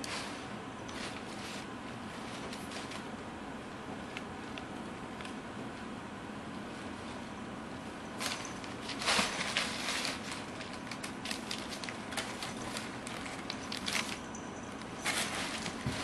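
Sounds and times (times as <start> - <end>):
packing paper crinkling: 8.2 - 16.0.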